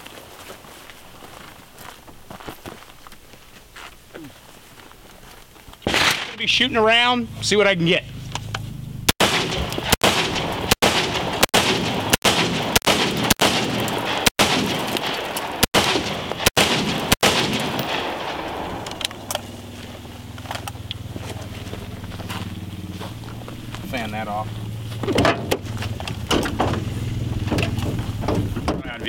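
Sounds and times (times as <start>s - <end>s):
rifle shots: 5.8s - 6.6s, 9.1s - 19.5s.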